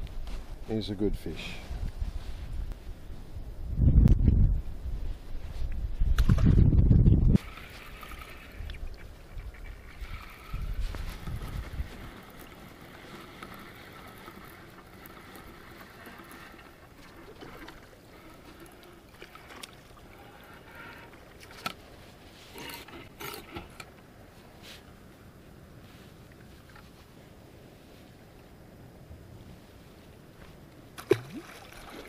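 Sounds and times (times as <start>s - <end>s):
wind rumble on microphone: 0.0s - 12.6s
faint lapping water: 7.4s - 32.0s.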